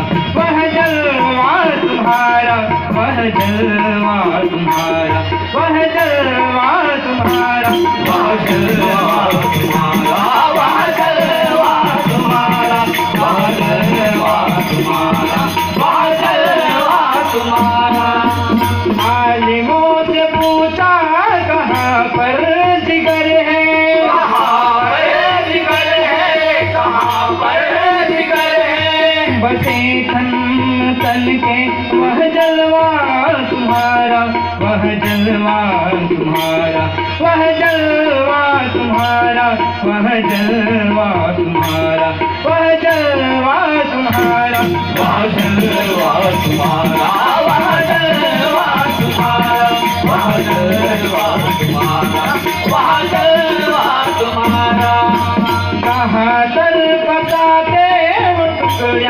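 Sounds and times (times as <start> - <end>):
devotional ensemble music: 0.0 - 59.0
harmonium: 0.0 - 59.0
jingling hand percussion: 0.0 - 59.0
man singing: 0.0 - 59.0
hand drum beat: 7.3 - 19.5, 44.1 - 56.2.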